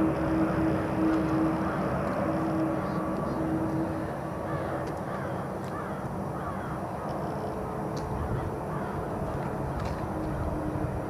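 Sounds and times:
jet engines rumbling: 0.0 - 11.0
bird calling: 1.5 - 6.8.

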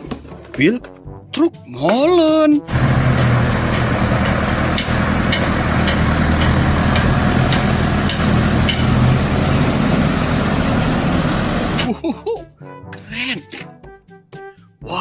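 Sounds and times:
diesel truck engine running: 2.7 - 12.0.

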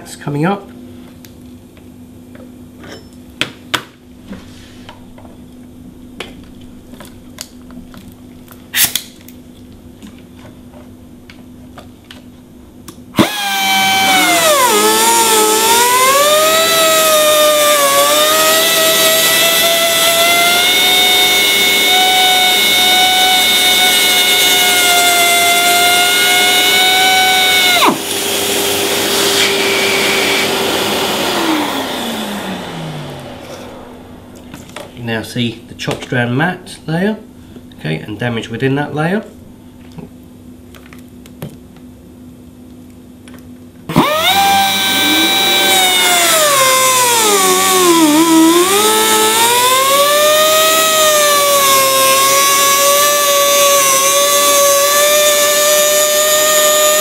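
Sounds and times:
sander cutter whine: 13.2 - 34.9, 43.9 - 57.0
low motor hum winding down: 13.2 - 35.0, 43.9 - 57.0.

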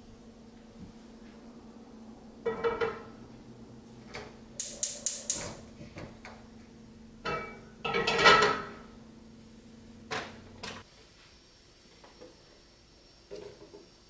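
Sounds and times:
low steady hum: 0.0 - 10.8
metal cookware clattering: 2.4 - 3.2, 7.2 - 8.9.

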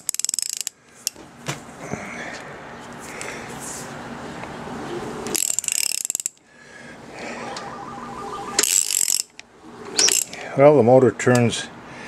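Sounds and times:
ratchet wrench clicking: 0.0 - 0.7, 5.4 - 6.4.

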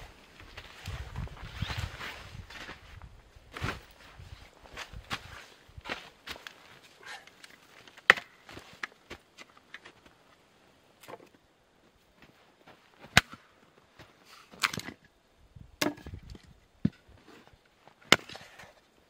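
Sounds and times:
hatchet chopping firewood: 7.0 - 9.9, 13.0 - 13.5, 14.5 - 15.0, 15.8 - 17.1, 18.0 - 18.8.

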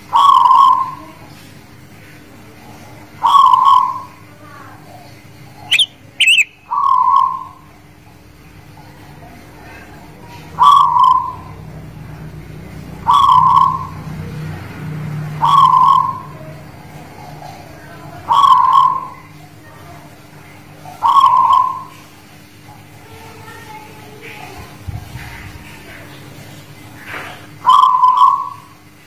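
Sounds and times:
dove cooing: 0.0 - 1.2, 3.2 - 4.2, 5.7 - 7.6, 9.7 - 11.6, 13.0 - 14.1, 15.4 - 16.5, 18.2 - 19.3, 20.9 - 22.0, 27.6 - 28.8
sharp high whistles: 5.7 - 6.6.

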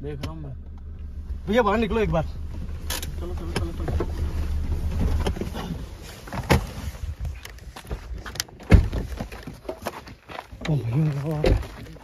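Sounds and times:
car engine rumble inside cabin: 0.0 - 8.2
car door clicks and knocks: 8.4 - 9.3
car door shutting thump: 8.7 - 9.0.

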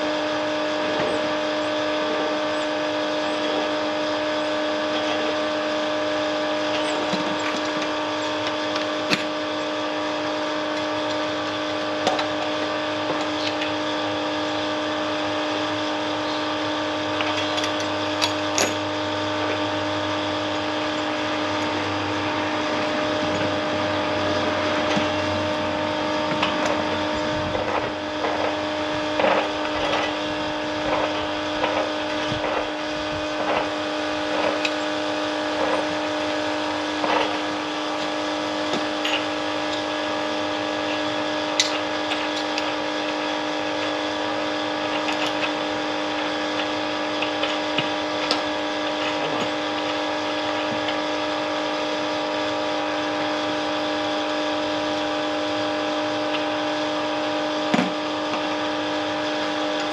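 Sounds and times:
small electric motor humming: 0.0 - 59.9.

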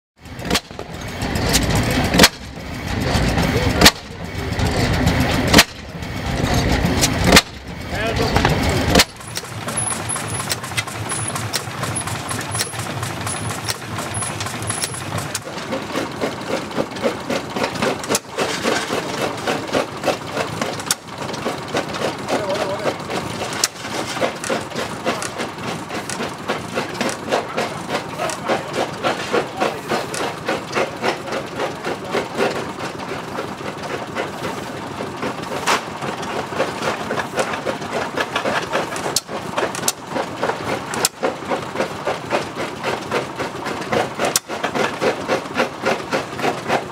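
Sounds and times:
stationary engines pulsing: 0.2 - 35.4.

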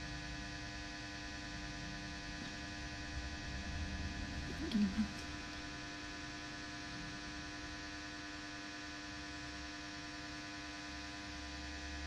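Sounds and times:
electrical hum and buzz: 0.0 - 12.0
murmur of a voice: 4.4 - 5.6.

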